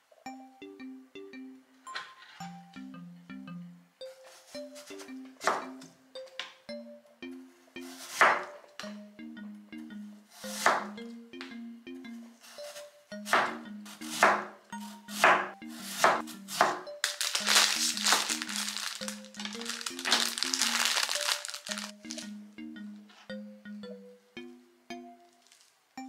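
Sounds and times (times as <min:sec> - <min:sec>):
plastic packaging crinkling: 0:17.0 - 0:22.2, 0:25.4 - 0:25.8.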